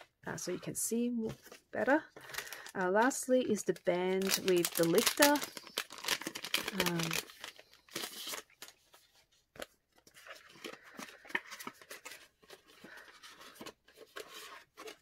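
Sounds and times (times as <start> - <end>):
plastic bag crinkling: 2.2 - 8.9.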